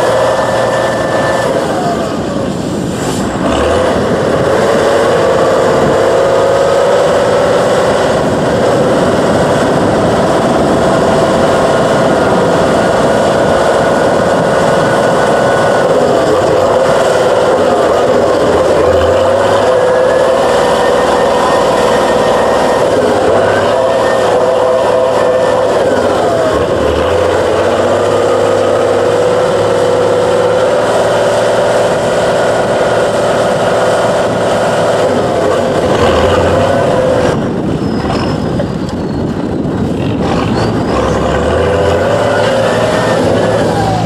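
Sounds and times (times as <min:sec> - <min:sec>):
diesel engine running under load: 0:00.0 - 0:44.0.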